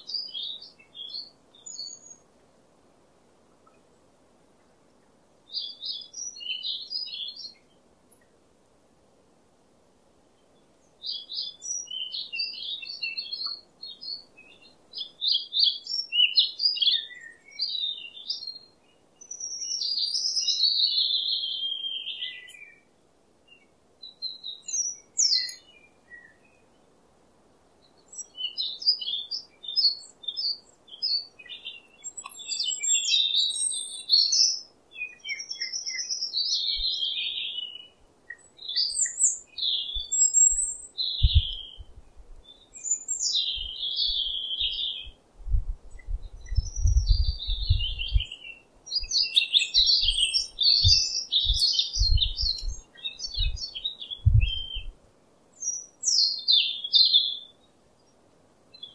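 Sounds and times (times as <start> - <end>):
small birds chirping: 0.0 - 2.4, 3.5 - 8.4, 10.2 - 27.0, 27.7 - 58.9.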